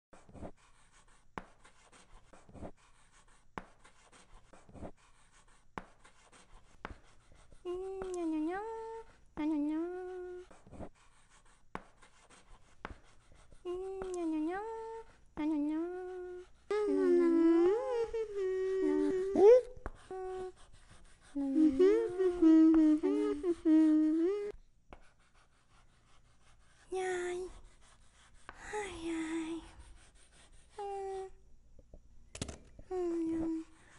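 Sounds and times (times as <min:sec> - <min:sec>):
chalk writing on chalkboard: 0:00.2 - 0:16.7, 0:17.6 - 0:24.2, 0:24.9 - 0:31.3
person humming a tune: 0:09.6 - 0:10.5, 0:15.6 - 0:20.6, 0:21.3 - 0:24.6, 0:32.9 - 0:33.8.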